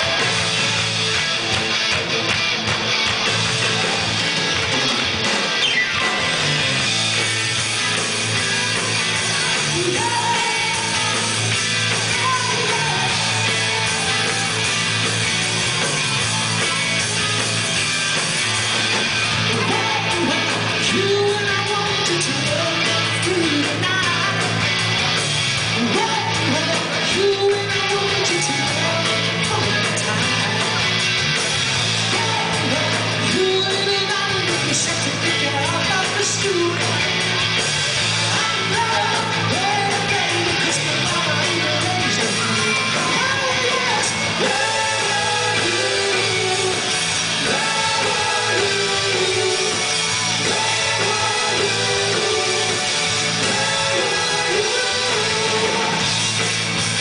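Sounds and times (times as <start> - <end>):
rock band playing: 0.0 - 57.0
person singing: 8.7 - 14.3, 19.5 - 24.5, 25.8 - 30.8, 38.3 - 56.1.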